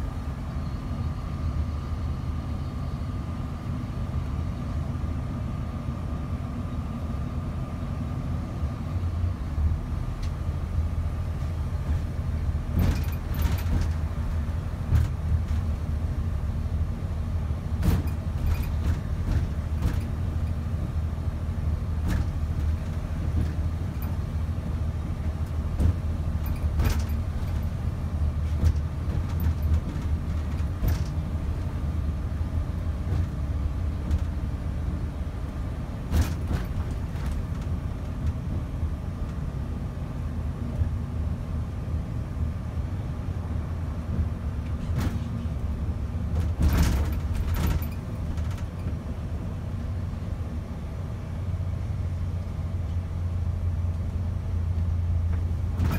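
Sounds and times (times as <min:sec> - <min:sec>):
coach engine and road rumble: 0:00.0 - 0:55.9
sharp clicks and knocks: 0:28.5 - 0:31.2.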